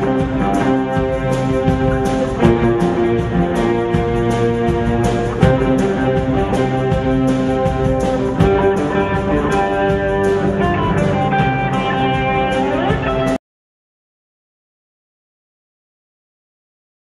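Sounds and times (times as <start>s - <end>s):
guitar-led background music: 0.0s - 13.4s.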